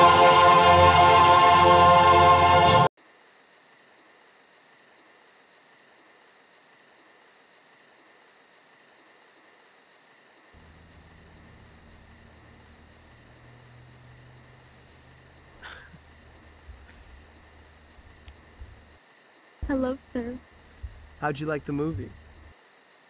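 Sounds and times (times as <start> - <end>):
orchestral music with choir: 0.0 - 2.9
high thin insect chorus: 3.0 - 23.0
low hum: 10.6 - 19.0, 19.6 - 22.5.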